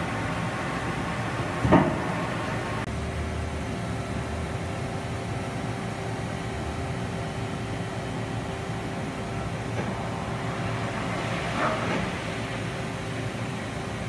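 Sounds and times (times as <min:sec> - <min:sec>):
machining center humming: 0:00.0 - 0:14.0.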